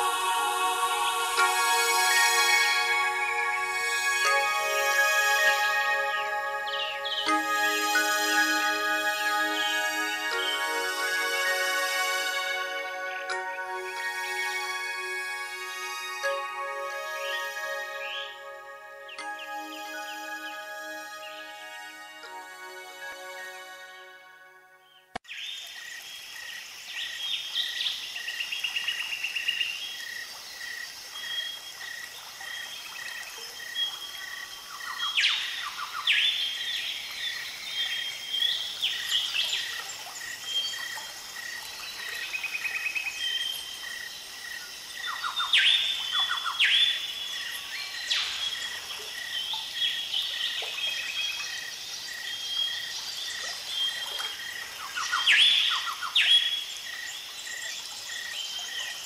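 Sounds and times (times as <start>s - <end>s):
birds chirping and whistling: 0.0s - 12.5s, 13.7s - 23.8s, 45.0s - 51.5s, 53.6s - 56.7s.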